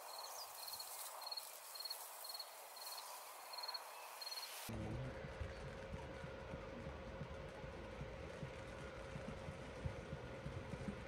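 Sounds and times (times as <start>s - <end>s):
cricket chirping: 0.0s - 4.7s
soft field hiss: 0.0s - 5.1s
low rumbling background: 4.7s - 11.0s.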